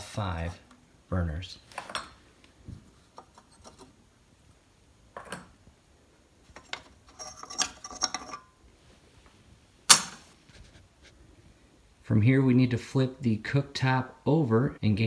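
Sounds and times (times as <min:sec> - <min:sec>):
metal burner plates clinking: 0:06.6 - 0:08.6, 0:09.9 - 0:10.3
sharp metal clank: 0:09.9 - 0:10.3.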